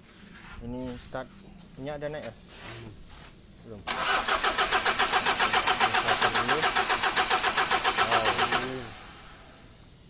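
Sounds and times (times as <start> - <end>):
starter motor cranking diesel engine: 3.9 - 9.6.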